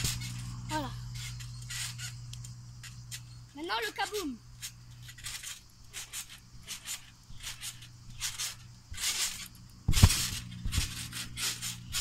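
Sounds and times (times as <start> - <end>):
bouncing on trampoline mat: 2.8 - 12.0
heavy thump on trampoline: 5.1 - 12.0.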